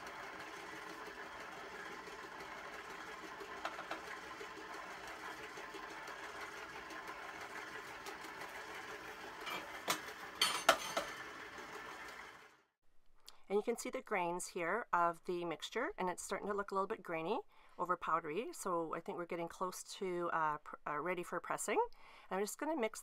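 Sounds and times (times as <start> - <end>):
stand mixer motor running: 0.0 - 12.6.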